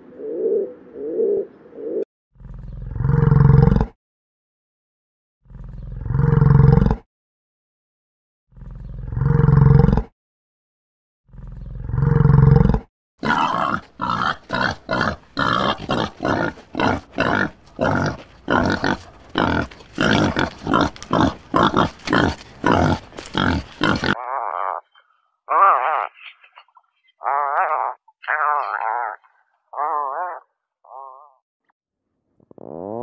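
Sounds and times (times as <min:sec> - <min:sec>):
cow lowing: 0:11.3 - 0:26.6
wild boars grunting: 0:11.3 - 0:26.6.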